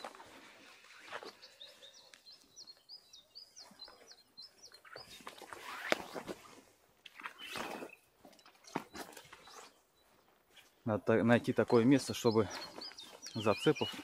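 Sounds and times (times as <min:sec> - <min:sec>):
footsteps through dry grass: 0:00.0 - 0:02.6, 0:07.6 - 0:14.0
songbird singing: 0:00.0 - 0:06.2, 0:07.0 - 0:14.0.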